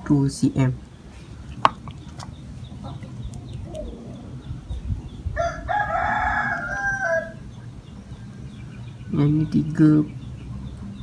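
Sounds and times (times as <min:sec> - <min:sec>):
rooster crowing: 0:05.4 - 0:07.4.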